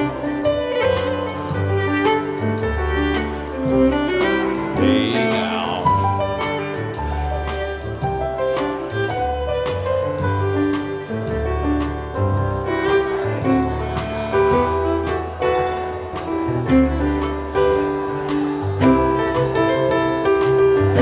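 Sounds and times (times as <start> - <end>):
fiddle: 0.0 - 21.0
bass line: 4.6 - 6.4
steady beat: 4.7 - 6.2.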